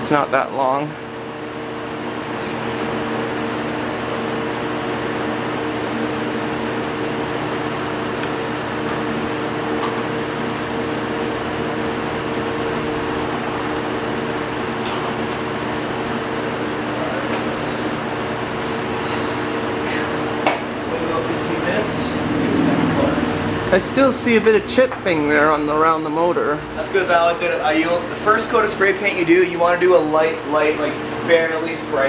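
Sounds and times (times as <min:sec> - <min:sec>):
machine hum and rushing air: 0:00.0 - 0:16.8, 0:17.5 - 0:24.9
spray paint hissing spurts: 0:01.4 - 0:02.0, 0:04.1 - 0:08.5, 0:10.8 - 0:14.2.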